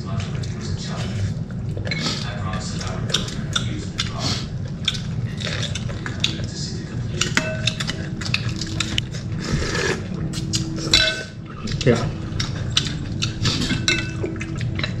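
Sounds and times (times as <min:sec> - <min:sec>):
steady low hum: 0:00.0 - 0:15.0
spoon clinking on ceramic bowls: 0:07.2 - 0:08.6, 0:10.9 - 0:11.4, 0:13.7 - 0:15.0.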